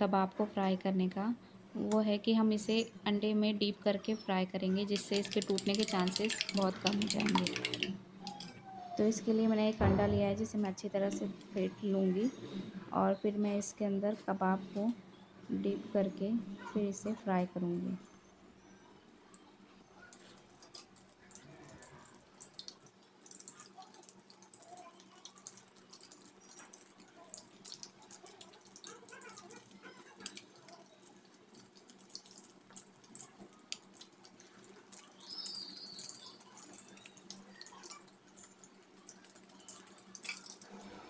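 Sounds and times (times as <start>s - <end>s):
food sizzling in hot oil: 22.3s - 40.7s.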